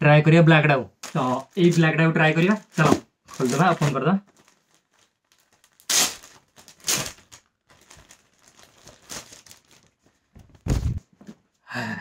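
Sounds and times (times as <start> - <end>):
plastic packaging crinkling: 1.0 - 10.4.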